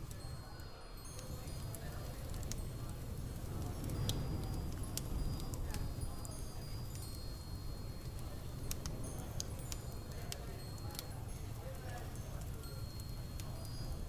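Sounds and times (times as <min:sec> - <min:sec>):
high tinkling tones: 0:00.0 - 0:14.0.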